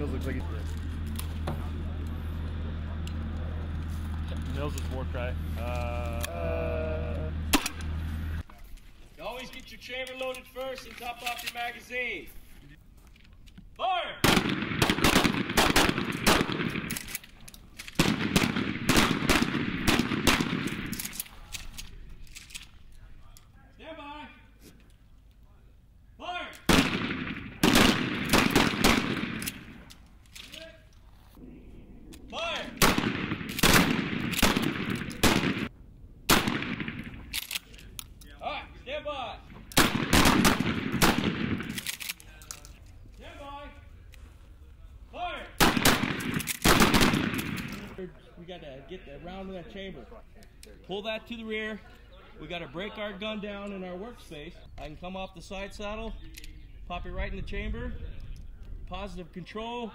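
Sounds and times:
shotguns firing rapidly: 14.2 - 17.1, 18.0 - 21.0, 26.6 - 29.8, 32.6 - 35.7, 36.3 - 37.3, 39.7 - 41.9, 45.6 - 47.9.

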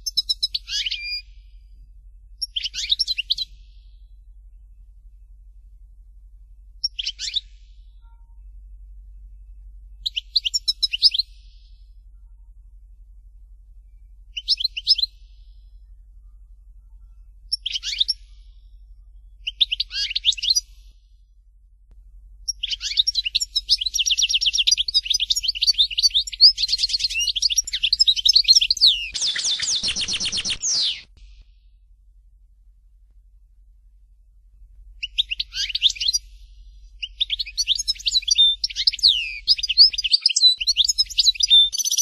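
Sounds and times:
goldfinch twittering song: 0.0 - 1.3, 2.4 - 3.6, 6.8 - 7.6, 10.0 - 11.6, 14.3 - 15.3, 17.5 - 18.3, 19.4 - 20.7, 22.5 - 31.2, 35.0 - 36.4, 37.0 - 42.0.

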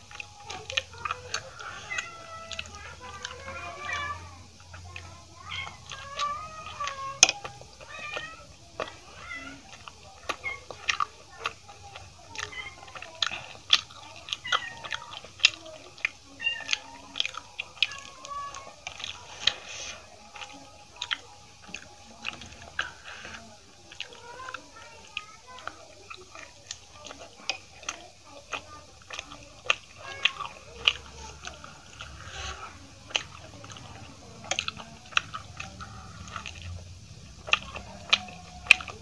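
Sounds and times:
chewing and wet mouth sounds: 0.0 - 39.0
cat meowing: 1.2 - 4.4, 5.4 - 11.4, 12.3 - 13.1, 16.3 - 17.2.

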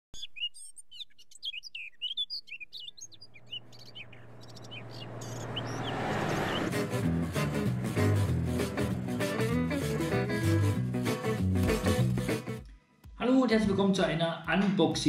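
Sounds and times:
birds chirping: 0.2 - 7.4
truck approaching: 3.0 - 11.0.

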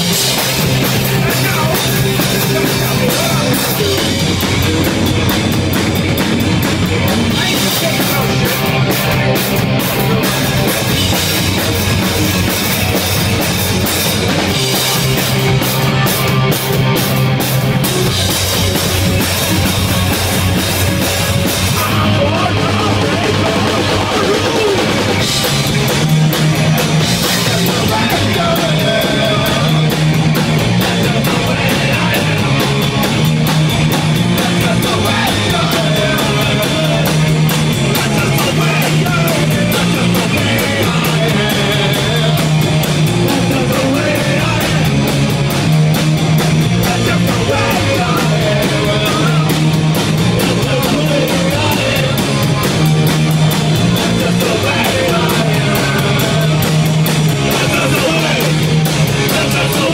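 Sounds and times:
punk rock music: 0.0 - 59.9.

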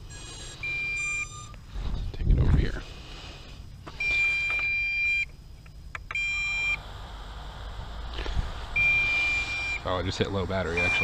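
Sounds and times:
high-pitched warning beeps: 0.0 - 1.7, 3.8 - 6.8, 8.7 - 11.0.

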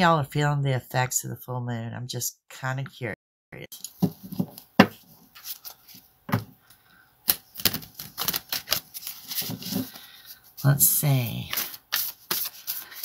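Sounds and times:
cards being shuffled: 4.0 - 6.4, 7.2 - 13.0.

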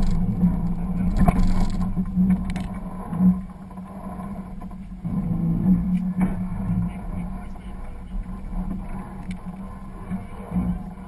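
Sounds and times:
off-road vehicle engine droning: 0.0 - 11.0.

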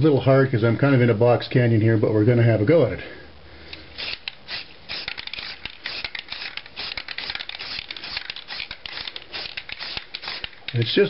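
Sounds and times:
spray can hissing spurts: 4.0 - 10.8.

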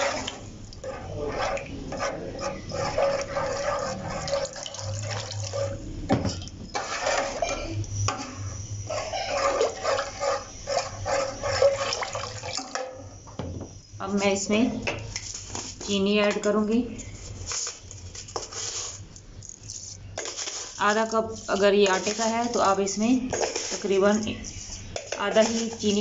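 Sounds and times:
liquid sloshing: 0.0 - 7.5
metal ladle scraping a pot: 0.0 - 12.9, 17.1 - 26.0.

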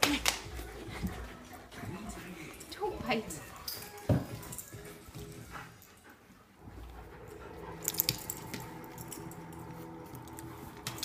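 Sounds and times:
puppies growling: 5.4 - 11.0.

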